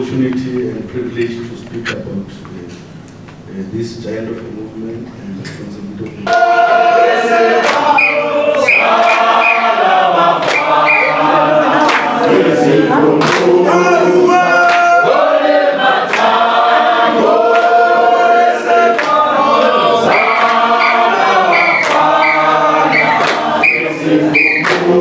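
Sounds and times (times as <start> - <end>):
group singing in chorus: 6.2 - 25.0
hand claps: 6.3 - 6.5, 7.6 - 9.7, 10.4 - 11.2, 11.8 - 12.3, 13.2 - 13.6, 16.1 - 16.4, 17.5 - 17.8, 18.9 - 19.2, 20.1 - 23.9, 24.5 - 25.0.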